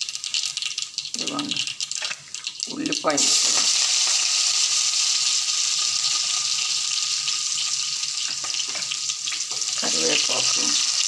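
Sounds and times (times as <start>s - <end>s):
onion sizzling in hot oil: 0.0s - 11.0s.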